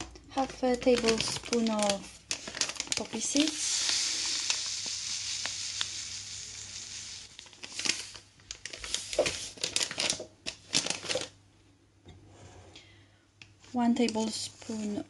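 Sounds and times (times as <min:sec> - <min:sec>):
seeds rustling into a bowl: 0:00.3 - 0:11.3.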